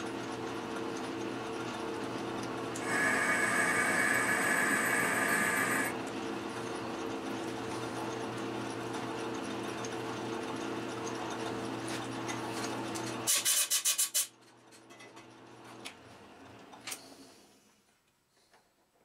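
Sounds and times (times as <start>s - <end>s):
metal lathe humming: 2.8s - 6.0s.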